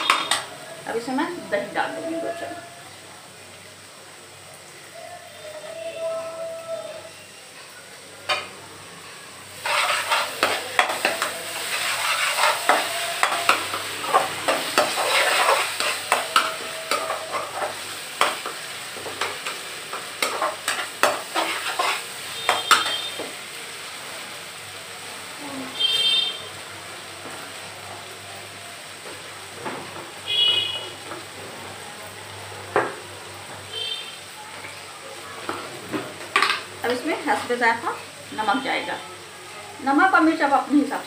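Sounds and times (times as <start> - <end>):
masala sizzling in oil: 0.0 - 41.0
metal skimmer scraping a pan: 9.6 - 18.3.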